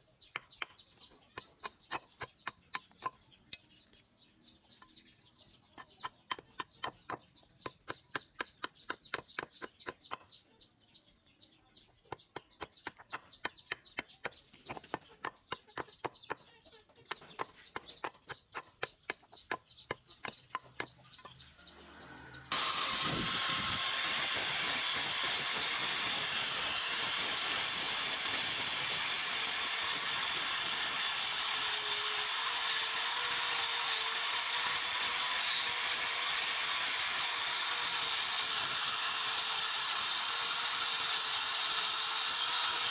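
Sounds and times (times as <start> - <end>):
angle grinder grinding steel: 21.7 - 42.9.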